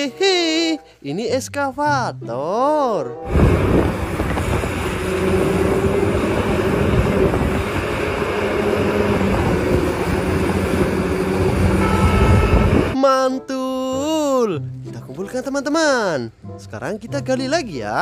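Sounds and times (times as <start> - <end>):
excavator diesel engine running: 3.3 - 13.0.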